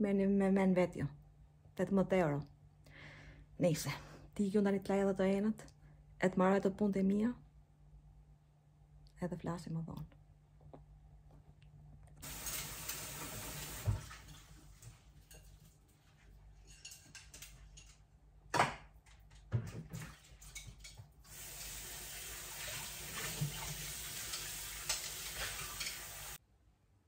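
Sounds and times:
tap running into sink: 0:12.2 - 0:14.4, 0:22.5 - 0:26.4
dishes knocking and clattering: 0:16.6 - 0:21.2.

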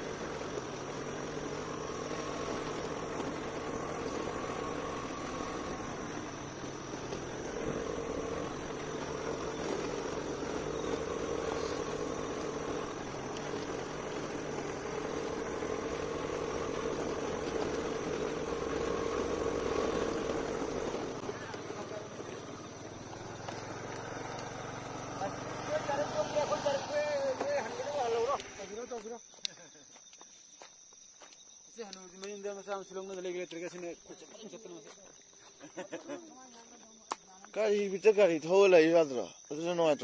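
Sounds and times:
vehicle engine on gravel road: 0:00.0 - 0:29.3.

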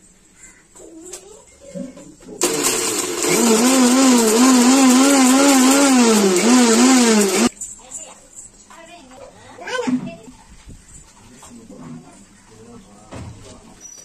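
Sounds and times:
mixer grinder motor grinding: 0:02.4 - 0:07.5.

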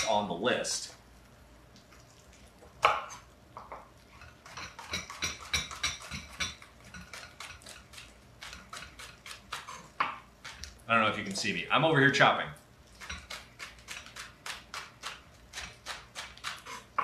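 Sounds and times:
knife chopping on cutting board: 0:04.6 - 0:07.8.

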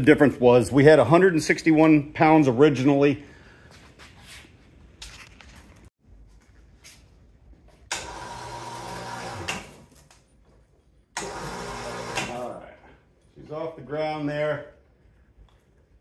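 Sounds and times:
hoist motor running: 0:07.9 - 0:09.8, 0:11.2 - 0:12.6.

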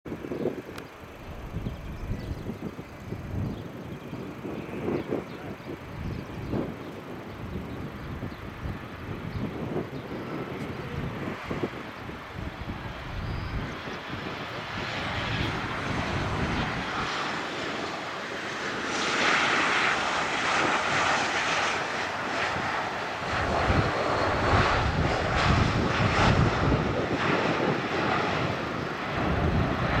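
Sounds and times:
jet airliner engine noise: 0:00.1 - 0:30.0
heavy low rumble: 0:01.2 - 0:17.1.

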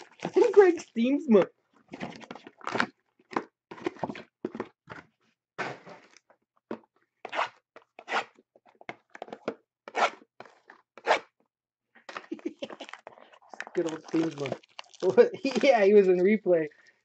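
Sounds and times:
wrapping tearing and crinkling: 0:00.0 - 0:01.0, 0:12.5 - 0:16.2.

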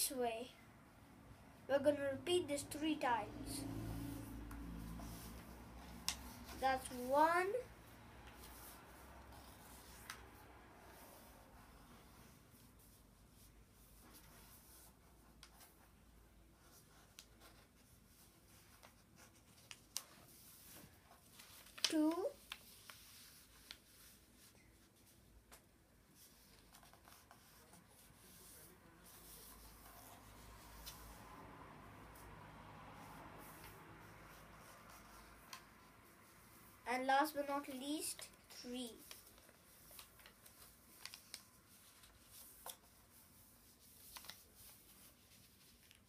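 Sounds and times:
paper being folded and creased: 0:16.6 - 0:25.2, 0:26.2 - 0:31.2, 0:33.1 - 0:36.7, 0:38.2 - 0:46.0.

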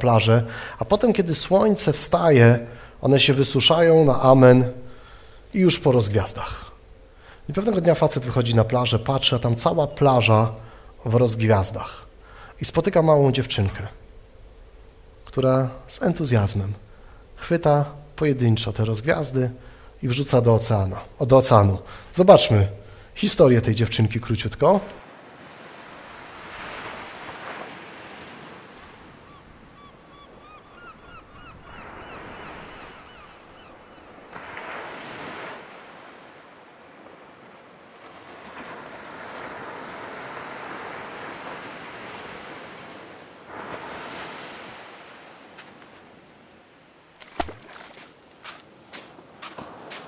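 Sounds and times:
wind: 0:00.0 - 0:50.0
ocean surf washing onto beach: 0:25.0 - 0:29.2, 0:34.3 - 0:50.0
bird calls: 0:29.2 - 0:34.3.

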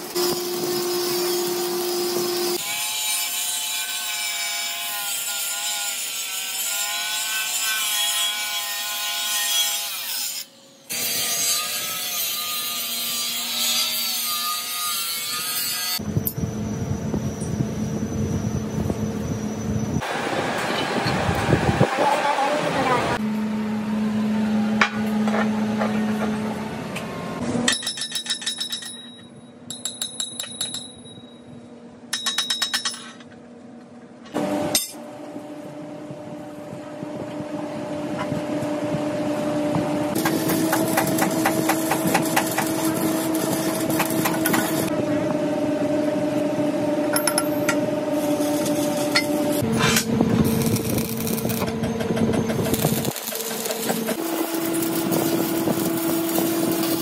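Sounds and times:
crackling welding arc: 0:40.2 - 0:44.9, 0:48.1 - 0:51.7, 0:52.5 - 0:57.0.

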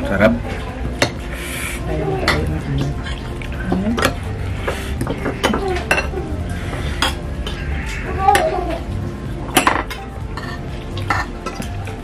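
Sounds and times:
cutlery clinking on glass bowl: 0:05.0 - 0:06.2, 0:09.5 - 0:11.8.

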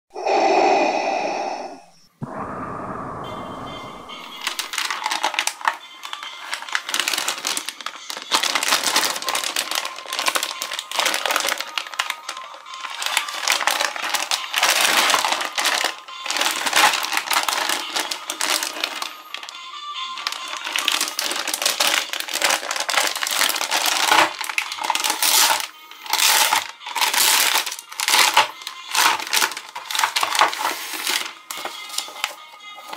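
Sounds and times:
plastic packaging bag crinkling: 0:04.1 - 0:32.9.

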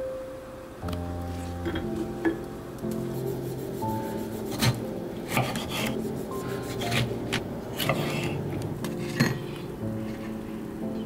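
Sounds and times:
soft background music: 0:00.0 - 0:11.0
knife rasping across toast: 0:04.1 - 0:07.2, 0:07.8 - 0:09.4.

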